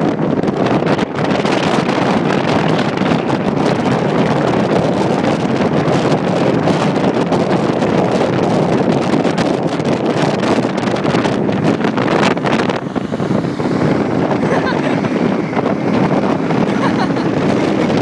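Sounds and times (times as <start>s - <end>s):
road noise: 0.0s - 18.0s
wind rushing on microphone: 0.0s - 18.0s.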